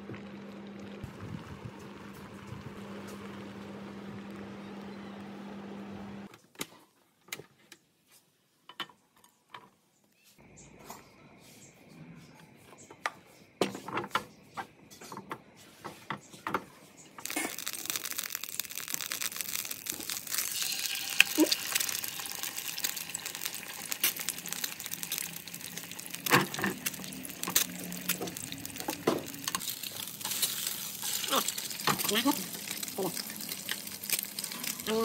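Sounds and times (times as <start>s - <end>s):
eggs sizzling in hot oil: 17.2s - 35.0s.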